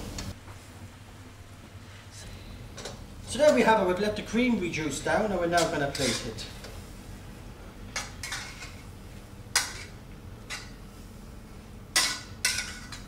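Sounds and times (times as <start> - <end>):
metal utensil scraping a frying pan: 5.6 - 6.5, 8.0 - 8.8, 9.5 - 10.8, 11.9 - 13.0.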